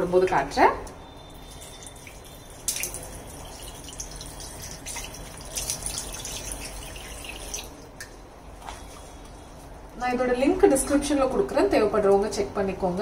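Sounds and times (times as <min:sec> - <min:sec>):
water dripping: 0:01.2 - 0:09.0
tap water splashing: 0:01.9 - 0:08.8.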